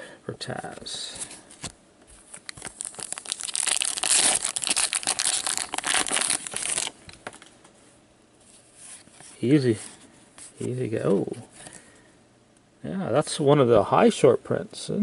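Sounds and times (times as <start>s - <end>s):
wrapper tearing and crinkling: 2.5s - 7.0s.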